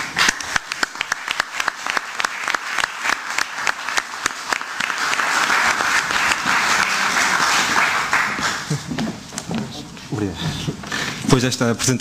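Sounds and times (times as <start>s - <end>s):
audience clapping: 0.0s - 9.5s.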